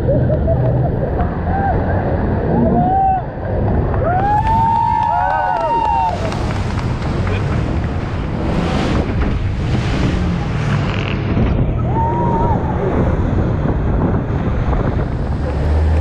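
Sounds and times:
low engine drone: 0.0 - 16.0
wind buffeting microphone: 0.0 - 16.0
rushing water and spray: 3.3 - 16.0.

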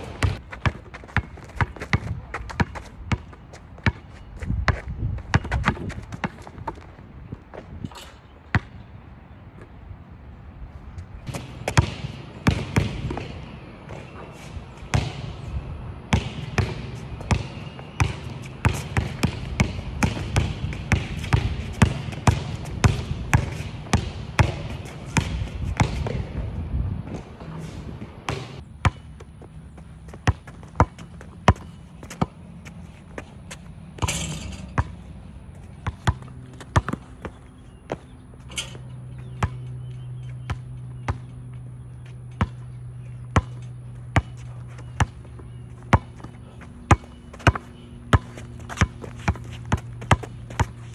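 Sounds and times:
basketball bouncing on court: 0.0 - 6.8, 7.9 - 8.8, 11.2 - 50.9.

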